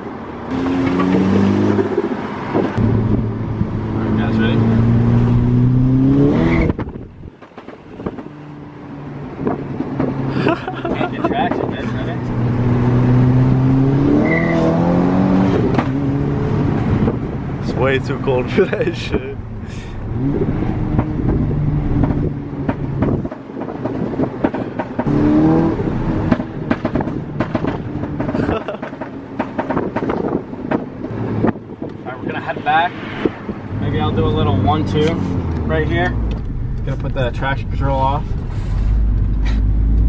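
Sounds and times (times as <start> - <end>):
car engine revving: 0.5 - 7.1, 7.9 - 40.0
exhaust crackles and pops: 20.4 - 25.2, 26.0 - 32.4, 35.0 - 38.4.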